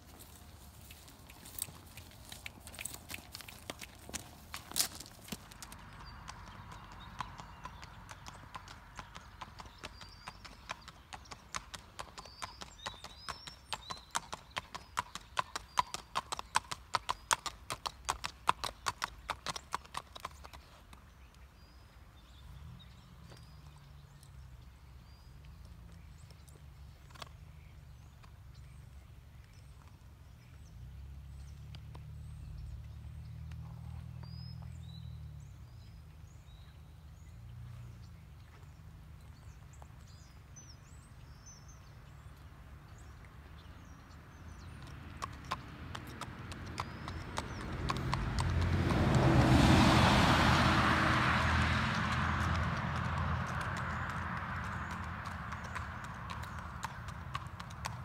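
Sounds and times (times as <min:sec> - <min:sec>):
horse hoofbeats: 0:00.0 - 0:20.6, 0:44.8 - 0:50.2, 0:50.8 - 0:58.0.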